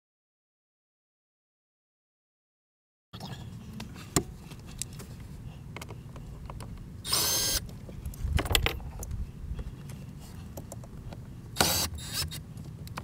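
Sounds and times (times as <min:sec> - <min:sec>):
low steady rumble: 0:03.2 - 0:13.0
cordless driver running: 0:07.0 - 0:07.6, 0:11.6 - 0:12.4.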